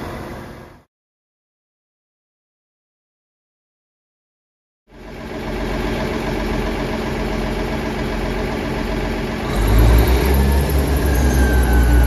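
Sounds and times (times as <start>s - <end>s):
train diesel engine idling: 0.0s - 0.8s, 4.9s - 12.0s.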